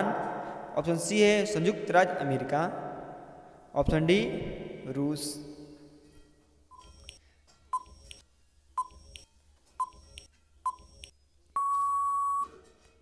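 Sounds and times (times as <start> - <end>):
short electronic beeps: 7.8 - 8.2, 8.8 - 9.2, 9.8 - 12.5
long steady beep: 11.6 - 12.5.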